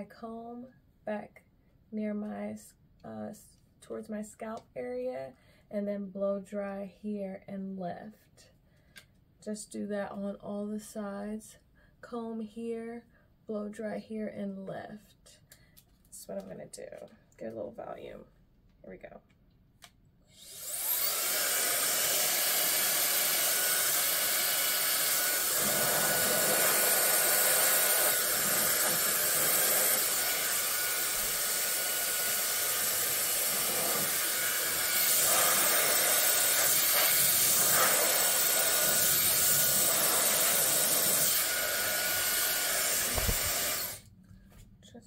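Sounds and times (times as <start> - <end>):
hair dryer running: 20.4 - 44.1.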